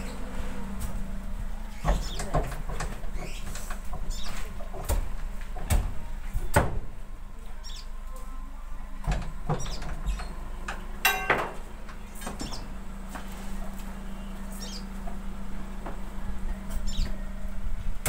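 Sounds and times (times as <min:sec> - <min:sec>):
fruit bunches knocking and thudding: 0:11.0 - 0:11.7.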